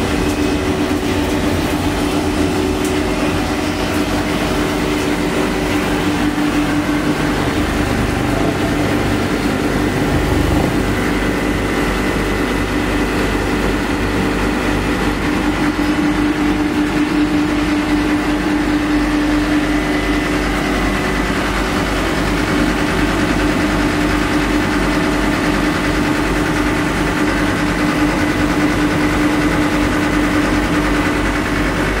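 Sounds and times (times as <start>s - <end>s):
machine din with whine: 0.0s - 32.0s.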